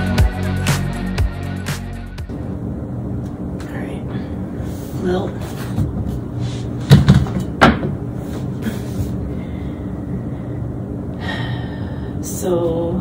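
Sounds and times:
person breathing and sighing: 0:08.5 - 0:12.2.

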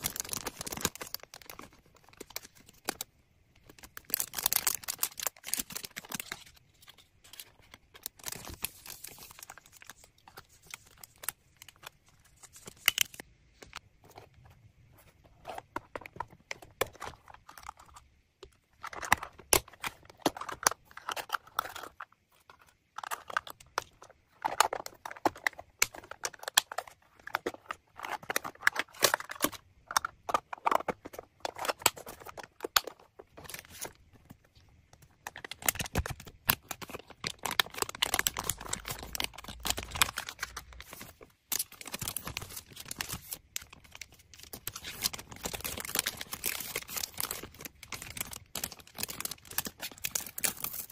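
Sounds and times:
plastic packaging crinkling: 0:00.0 - 0:13.8, 0:35.3 - 0:50.9.

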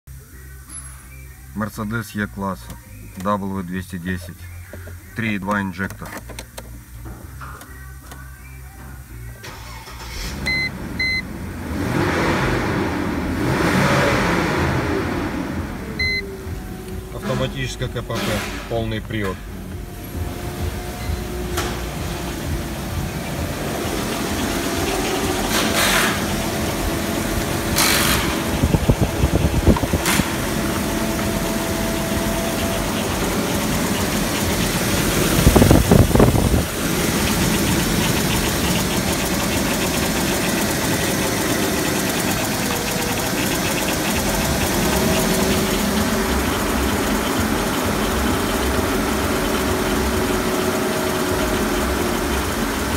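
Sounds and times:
petrol engine idling: 0:15.0 - 0:52.9.

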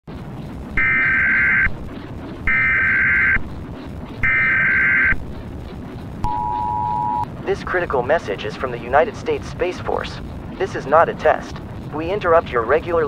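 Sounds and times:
static hiss: 0:00.1 - 0:13.0
two-tone digital data bursts: 0:00.8 - 0:01.7, 0:02.5 - 0:03.4, 0:04.2 - 0:05.2.

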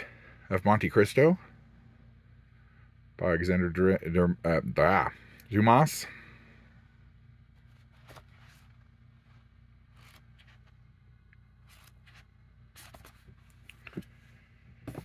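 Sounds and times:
book pages flipping: 0:07.6 - 0:10.8, 0:11.6 - 0:14.1.

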